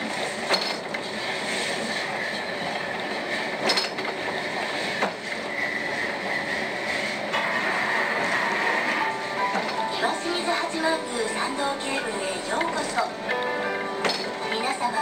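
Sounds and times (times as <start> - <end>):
funicular wheels rolling rumble: 0.0 - 15.0
high wheel squeal: 5.4 - 9.5.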